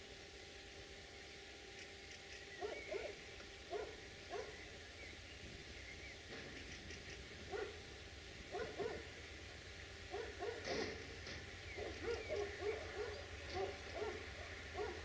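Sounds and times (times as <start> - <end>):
faint birdsong: 0.0 - 15.0
dog barking faintly: 2.6 - 4.6, 7.5 - 7.8, 8.5 - 9.1, 10.1 - 10.9, 11.8 - 15.0.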